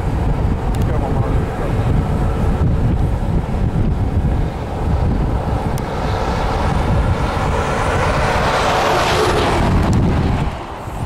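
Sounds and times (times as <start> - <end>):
high whine dropping in pitch: 0.0 - 11.0
jet engines roaring overhead: 0.0 - 11.0
wind buffeting microphone: 0.0 - 11.0.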